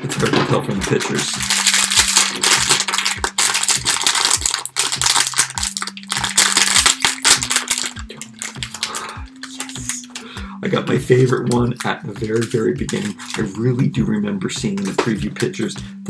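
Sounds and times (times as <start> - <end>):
foil bag crinkling: 0.2 - 10.2, 11.1 - 13.6.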